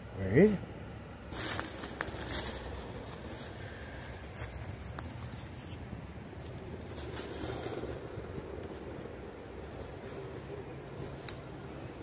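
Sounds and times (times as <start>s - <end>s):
low steady rumble: 0.0s - 12.0s
twigs crackling underfoot: 1.3s - 12.0s
twigs snapping: 1.4s - 5.8s, 10.3s - 12.0s.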